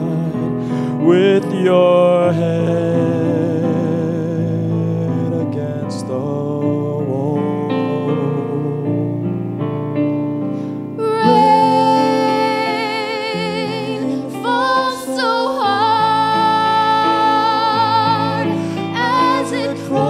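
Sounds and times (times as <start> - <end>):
piano playing chords: 0.0 - 20.0
woman singing with vibrato: 11.0 - 20.0.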